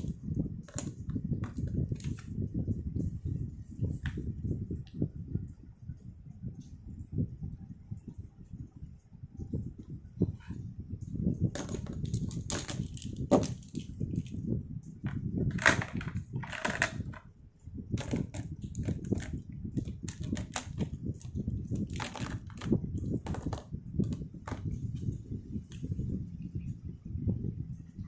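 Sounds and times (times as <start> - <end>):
pens tapping and scraping on desk: 0.0 - 2.3, 11.5 - 14.4, 15.1 - 17.3, 18.0 - 25.1
plastic pens clattering: 0.0 - 2.3, 11.5 - 14.4, 15.1 - 17.3, 18.0 - 25.1.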